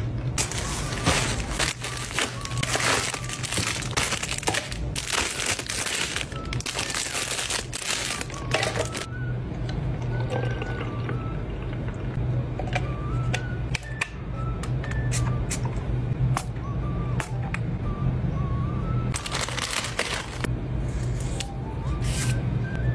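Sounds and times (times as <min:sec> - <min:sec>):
packaging crinkling: 0:00.4 - 0:09.1, 0:19.1 - 0:20.5.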